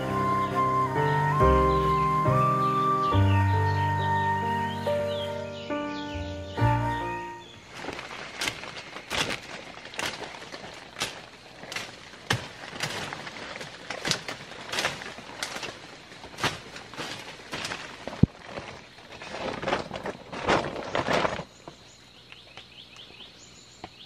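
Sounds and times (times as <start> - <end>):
twigs snapping and rustling: 7.5 - 23.1
machete chopping undergrowth: 8.4 - 17.8.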